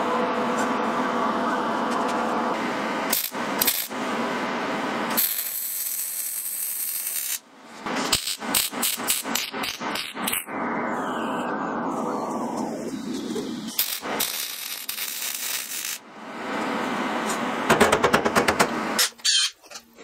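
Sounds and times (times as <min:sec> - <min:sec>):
welder arc crackling and sizzling: 0:02.5 - 0:17.7.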